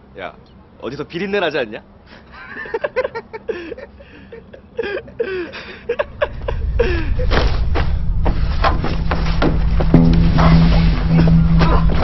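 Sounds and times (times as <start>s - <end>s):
low rumble: 5.9s - 12.0s.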